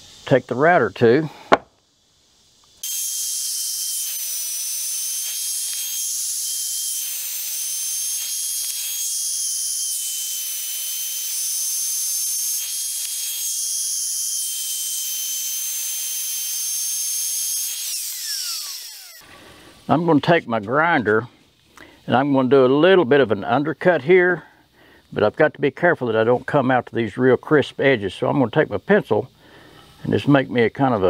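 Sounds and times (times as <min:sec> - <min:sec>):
router bit cutting wood hiss: 0:00.0 - 0:01.7, 0:02.6 - 0:25.5
electric router whining: 0:02.8 - 0:19.6.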